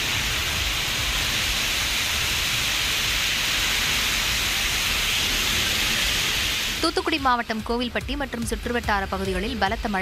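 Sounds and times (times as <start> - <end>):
heavy rain on a road: 0.0 - 7.6.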